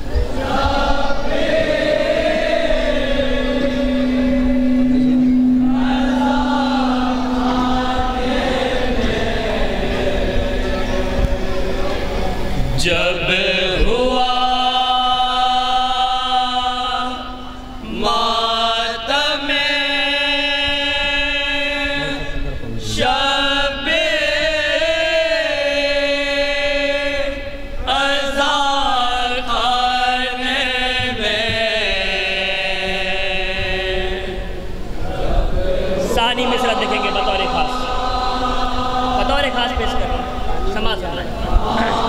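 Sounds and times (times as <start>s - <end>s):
men chanting a lament: 12.8s - 42.0s.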